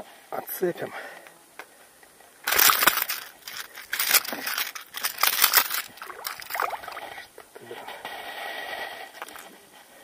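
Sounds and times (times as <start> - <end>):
fish thrashing on a lure: 2.4 - 7.3.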